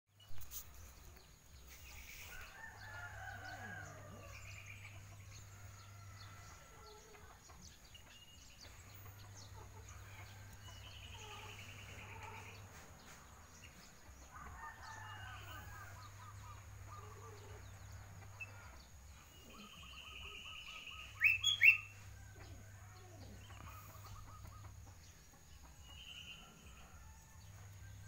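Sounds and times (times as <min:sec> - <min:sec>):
small birds chirping: 0:00.2 - 0:28.0
rooster crowing: 0:02.3 - 0:04.6, 0:14.3 - 0:16.3
chickens clucking: 0:02.3 - 0:15.2, 0:21.9 - 0:25.9.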